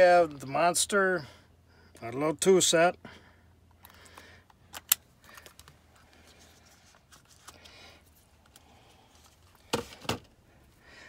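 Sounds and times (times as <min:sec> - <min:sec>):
sockets clicking and rustling: 0:03.8 - 0:05.8.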